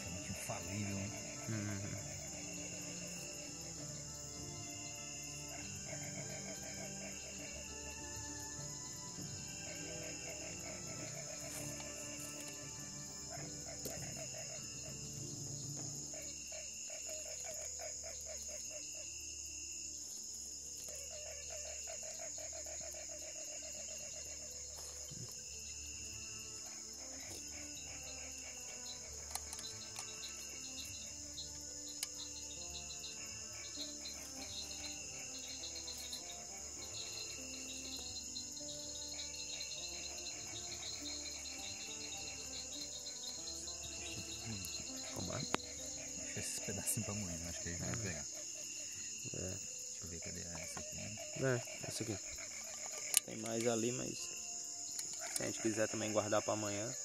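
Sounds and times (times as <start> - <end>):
low pulsing animal call: 0.0 - 19.1, 20.9 - 53.3
crickets chirring: 0.0 - 57.0
insects trilling: 0.0 - 57.0.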